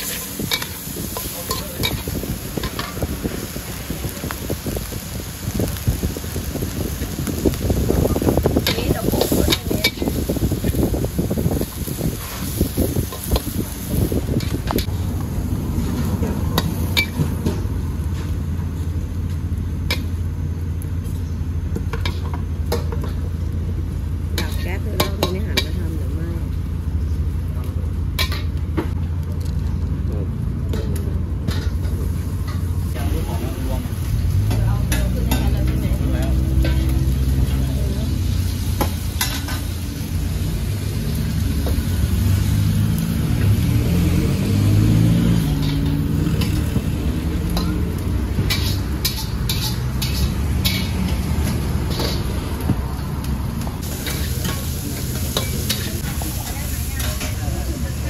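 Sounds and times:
metal utensils clinking: 0:00.0 - 0:03.0, 0:45.5 - 0:52.4, 0:53.9 - 0:57.4
seafood sizzling in a wok: 0:00.0 - 0:29.8, 0:30.7 - 0:58.0
low kitchen rumble: 0:00.0 - 0:58.0
low engine-like hum: 0:13.4 - 0:58.0
metal spatula clacking on pan: 0:48.5 - 0:51.0.

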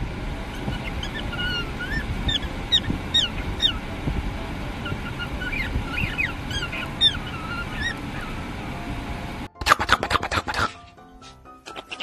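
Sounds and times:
cockatiel chirping: 0:00.5 - 0:04.0, 0:04.8 - 0:08.5, 0:11.7 - 0:12.0.

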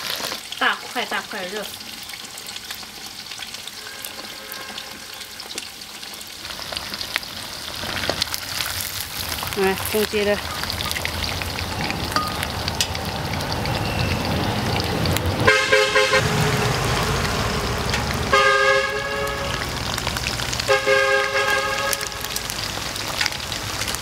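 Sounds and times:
oil sizzling: 0:00.0 - 0:24.0
vehicle horn toots: 0:03.7 - 0:05.5, 0:15.4 - 0:16.3, 0:18.2 - 0:19.8, 0:20.7 - 0:22.4.

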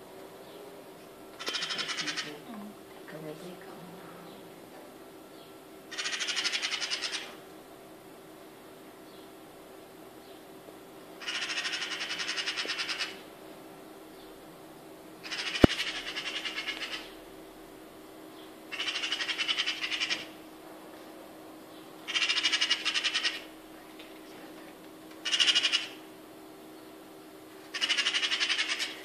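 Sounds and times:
magpie rattling chatter: 0:01.4 - 0:02.4, 0:05.9 - 0:07.4, 0:11.2 - 0:13.2, 0:15.2 - 0:17.2, 0:18.7 - 0:20.4, 0:22.1 - 0:23.5, 0:25.2 - 0:26.0, 0:27.7 - 0:29.0.

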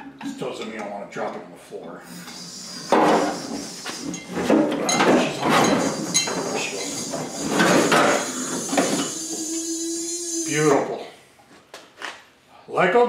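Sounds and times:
metal tank scraping and clunking: 0:02.2 - 0:09.2.

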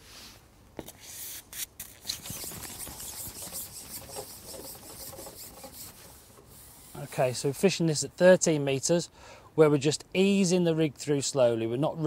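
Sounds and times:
fishing pole sliding through hands: 0:00.0 - 0:07.5.

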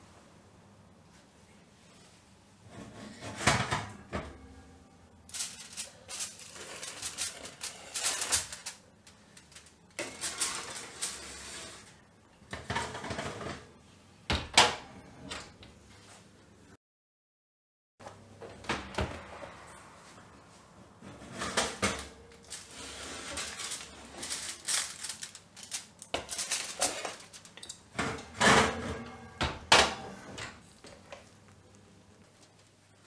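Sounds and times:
metal tin clattering on oven rack: 0:03.1 - 0:04.5, 0:21.1 - 0:30.6.

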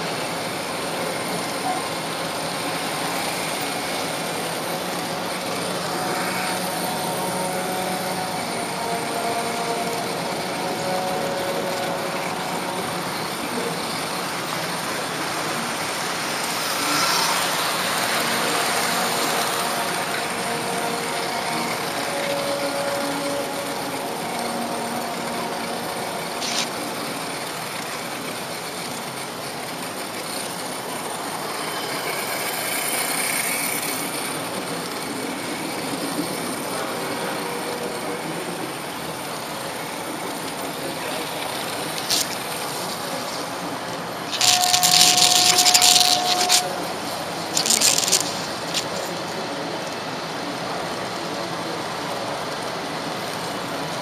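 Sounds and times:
model train rumbling on track: 0:00.0 - 0:54.0
loud hiss with steady tone: 0:36.7 - 0:52.4.

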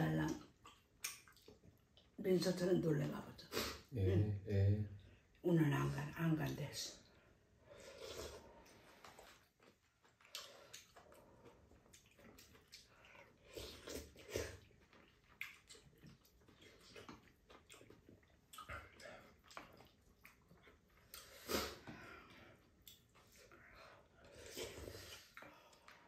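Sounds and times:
chewing: 0:00.2 - 0:02.2, 0:07.9 - 0:26.0
slurping broth: 0:07.8 - 0:09.4.

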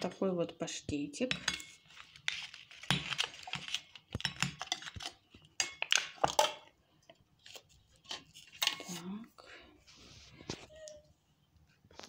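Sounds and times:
plastic tub and foil crinkling: 0:00.0 - 0:09.2.

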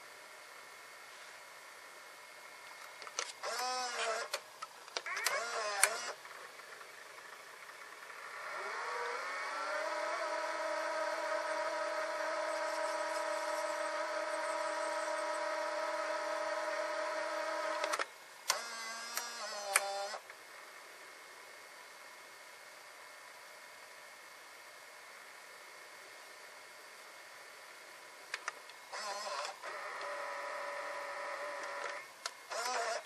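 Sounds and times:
tape mechanism whirring: 0:03.1 - 0:04.4, 0:05.0 - 0:06.2, 0:08.3 - 0:20.2, 0:28.9 - 0:33.0
reel motor whine: 0:05.1 - 0:06.2, 0:08.0 - 0:17.9, 0:18.5 - 0:20.2, 0:28.9 - 0:33.0.

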